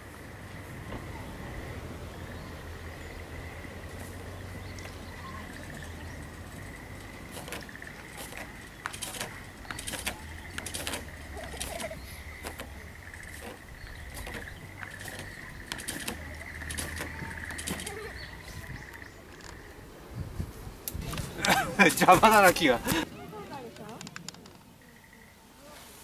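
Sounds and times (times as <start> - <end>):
constant high tone: 0.0 - 19.8
rustling in dry leaves: 0.3 - 23.8, 25.5 - 26.0.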